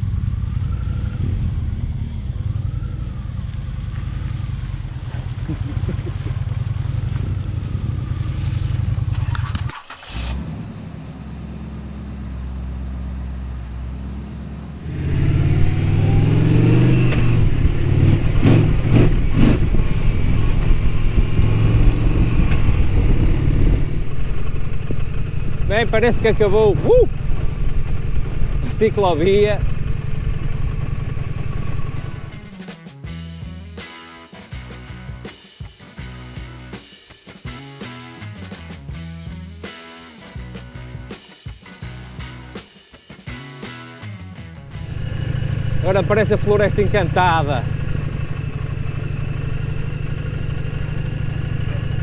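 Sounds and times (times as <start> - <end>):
low drone: 0.0 - 9.6, 10.2 - 25.8, 44.7 - 52.0
motorcycle engine running: 0.0 - 33.9, 44.4 - 52.0.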